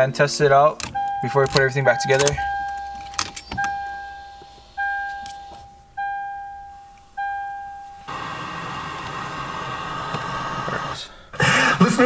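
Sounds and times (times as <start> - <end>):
car warning chime dings: 0.7 - 8.3
radio static hiss: 3.5 - 5.6, 8.0 - 12.0.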